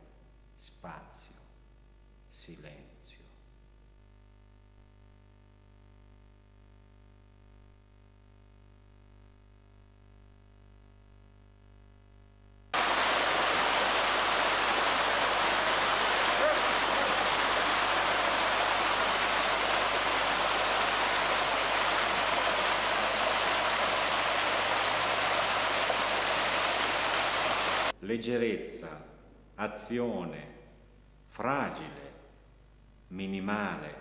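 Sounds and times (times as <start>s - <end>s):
water cascading over rocks: 12.8s - 27.9s.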